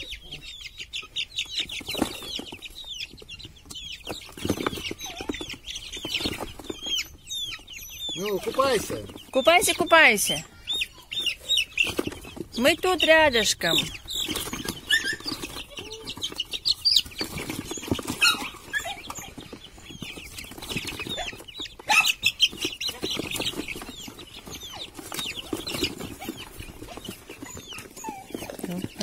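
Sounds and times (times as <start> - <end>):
chicks peeping: 0.0 - 29.0
cardboard box rustling and knocking: 14.2 - 21.6.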